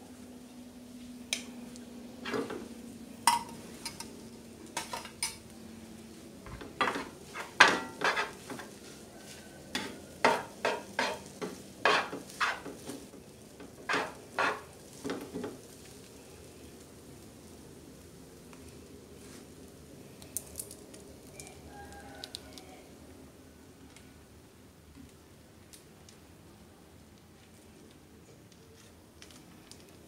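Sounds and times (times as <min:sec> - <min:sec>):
spatula scraping frying pan: 0:02.2 - 0:02.6, 0:06.5 - 0:15.7.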